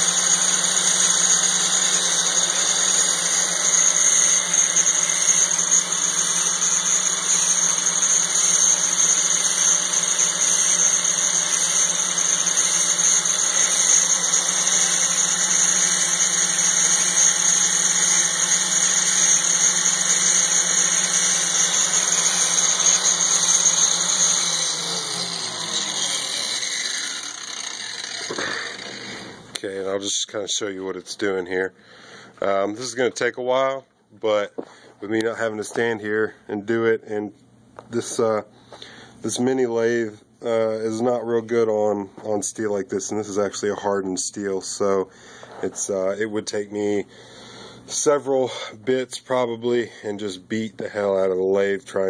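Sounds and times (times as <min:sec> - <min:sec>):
lathe motor hum: 0:00.0 - 0:29.5
angle grinder whining on steel: 0:00.0 - 0:29.6.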